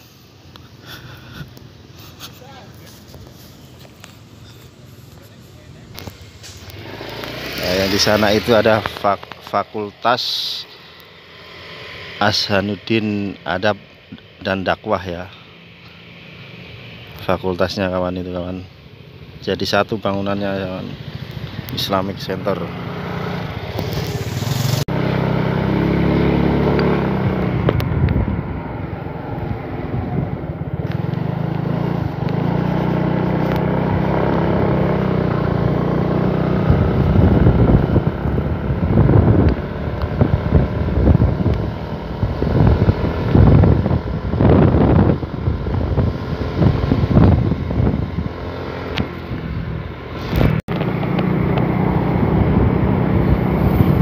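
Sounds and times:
motorcycle engine running: 0:02.1 - 0:14.4, 0:20.1 - 0:54.0
wind buffeting microphone: 0:27.0 - 0:32.6, 0:33.7 - 0:54.0.

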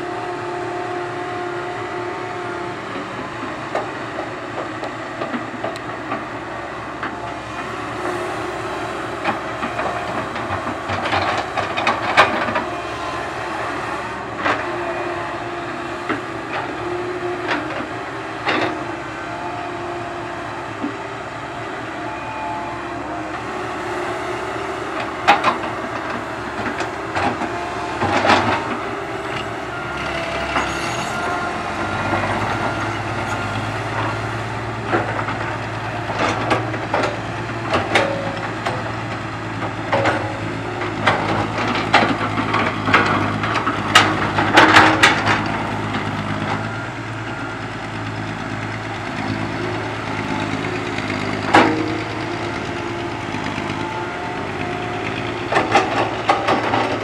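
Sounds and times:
excavator diesel engine: 0:00.0 - 0:57.0
hydraulic squeals and whine: 0:22.0 - 0:24.7, 0:27.7 - 0:34.2.

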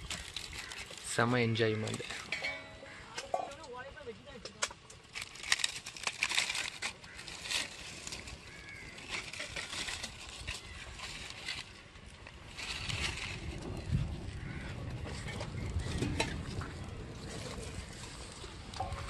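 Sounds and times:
dry palm leaves rustling: 0:00.0 - 0:19.0
small fire crackling: 0:00.0 - 0:19.0.

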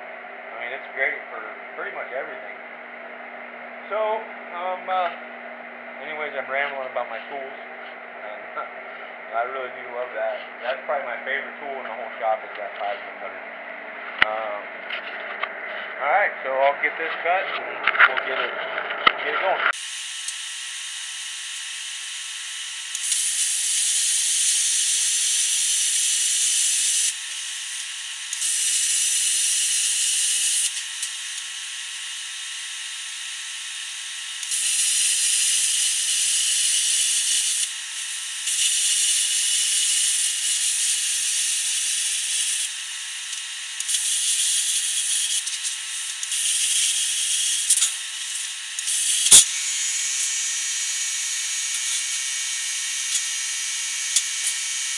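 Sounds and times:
plasma cutter hissing: 0:19.8 - 0:54.9.

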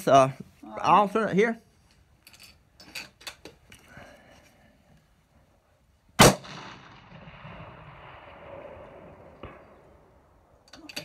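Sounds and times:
rifle shot with echo: 0:06.2 - 0:10.5.

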